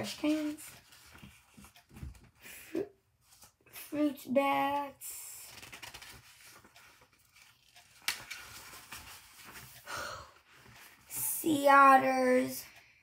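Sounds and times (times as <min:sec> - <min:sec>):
book pages rustling: 0:00.0 - 0:02.4, 0:03.2 - 0:03.6, 0:05.4 - 0:09.8, 0:10.5 - 0:11.3
sharp paper snap: 0:07.4 - 0:08.9.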